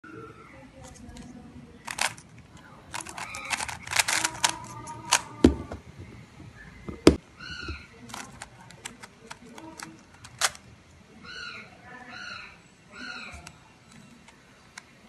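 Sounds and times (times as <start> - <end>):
plastic cube clacking: 0.8 - 10.7
heavier plastic knocks: 5.1 - 8.3.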